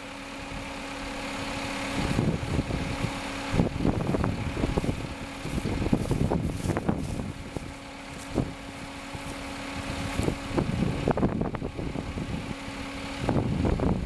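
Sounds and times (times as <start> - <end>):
engine idling: 0.0 - 14.0
low rumbles: 0.0 - 14.0.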